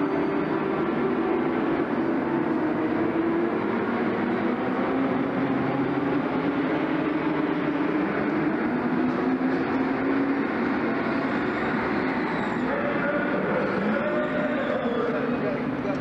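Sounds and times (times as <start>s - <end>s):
kart engines droning: 0.0s - 16.0s.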